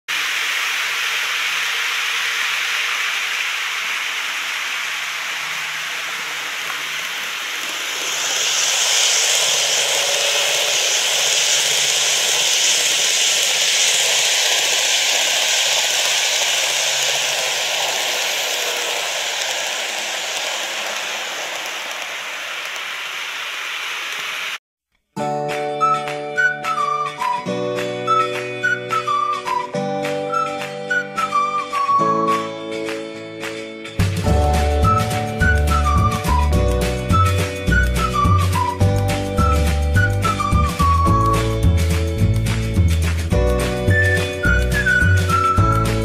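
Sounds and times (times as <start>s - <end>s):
faint motor whir: 5.2s - 24.6s
model train rolling on track: 5.2s - 24.6s, 34.3s - 46.0s.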